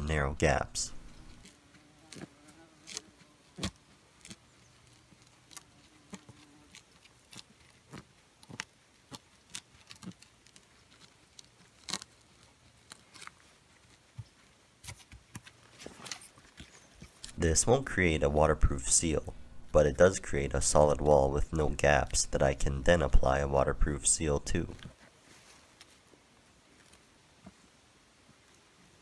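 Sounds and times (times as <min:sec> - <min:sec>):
fly buzzing: 0:01.1 - 0:03.4.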